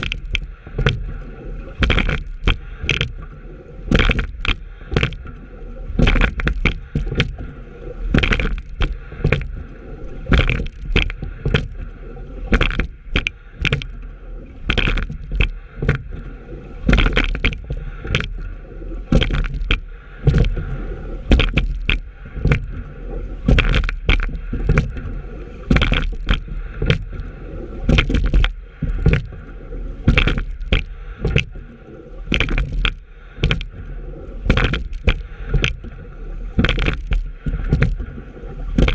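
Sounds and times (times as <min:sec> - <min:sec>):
oars knocking in oarlocks: 0:00.0 - 0:01.1, 0:01.8 - 0:03.2, 0:03.9 - 0:05.2, 0:06.0 - 0:07.4, 0:08.1 - 0:09.6, 0:10.3 - 0:11.8, 0:12.5 - 0:14.0, 0:14.6 - 0:16.2, 0:16.9 - 0:18.4, 0:19.1 - 0:20.7, 0:21.3 - 0:22.8, 0:23.5 - 0:25.0, 0:25.7 - 0:27.3, 0:27.9 - 0:29.4, 0:30.1 - 0:31.6, 0:32.3 - 0:33.8, 0:34.4 - 0:38.1
oar blades in water: 0:00.0 - 0:38.9
water rushing along hull: 0:00.0 - 0:38.9.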